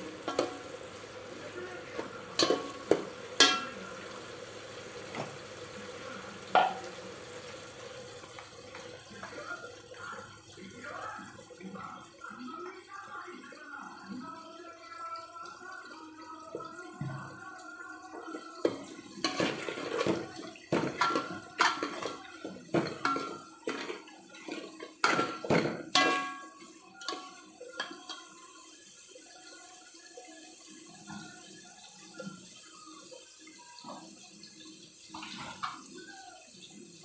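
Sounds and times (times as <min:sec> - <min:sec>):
onions sizzling: 0:00.0 - 0:10.7, 0:18.3 - 0:30.0.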